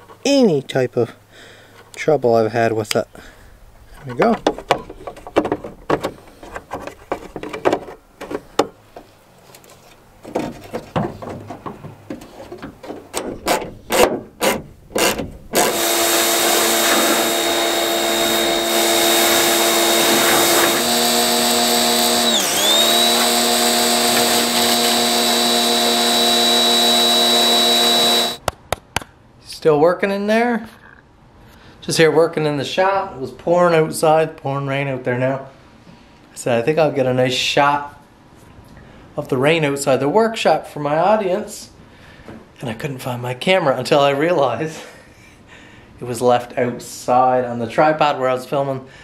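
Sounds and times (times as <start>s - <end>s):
pressure washer motor whine: 15.6s - 28.4s.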